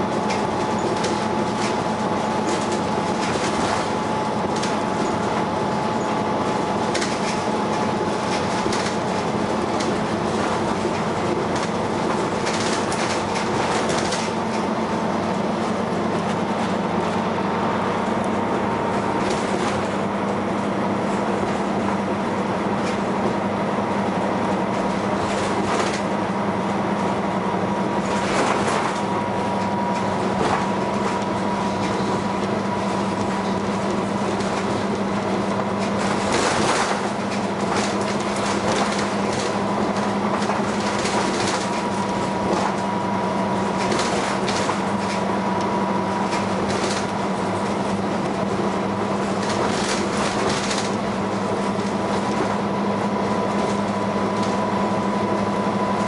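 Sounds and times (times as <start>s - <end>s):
bus engine with whine: 0.0s - 56.0s
body rattles and bumps: 6.3s - 14.7s, 28.0s - 43.0s.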